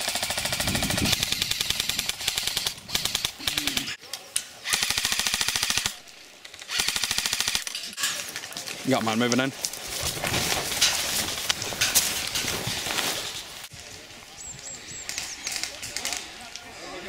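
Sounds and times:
airsoft rifle automatic fire: 0.0 - 3.9, 4.7 - 6.0, 6.7 - 7.7.

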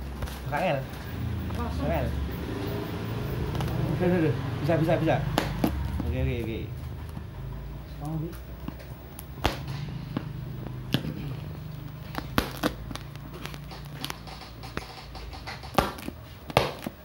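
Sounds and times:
packing tape being torn open: 11.9 - 14.8.

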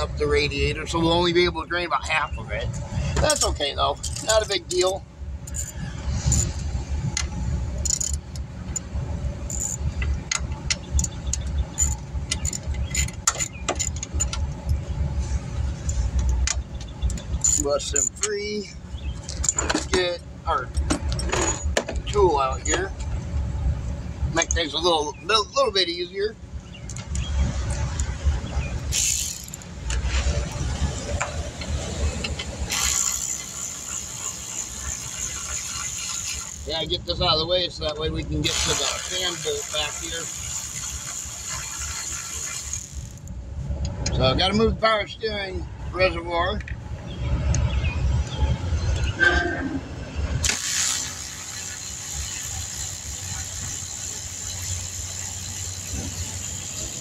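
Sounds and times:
steady low rumble: 0.0 - 33.9
hand tools clinking: 28.9 - 30.0.

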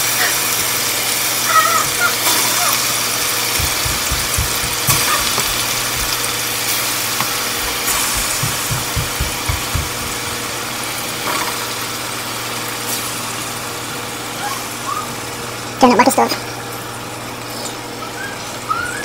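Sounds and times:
chicken sizzling in hot oil: 0.0 - 3.6, 10.0 - 15.8
soft low thumps: 3.5 - 6.6, 7.3 - 10.6.

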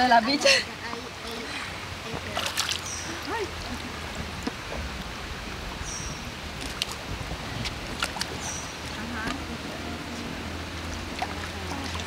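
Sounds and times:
pool water moving: 0.0 - 12.0
wind rumble on microphone: 3.4 - 12.0.

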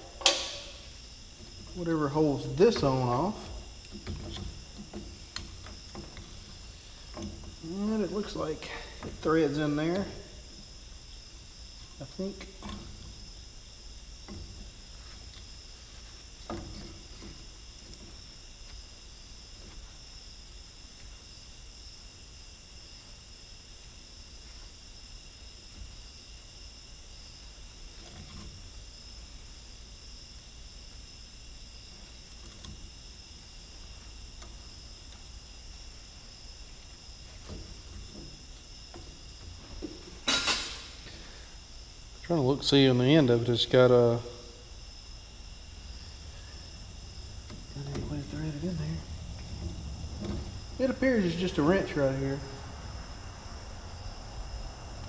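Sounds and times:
high-pitched background whine: 0.0 - 55.0.

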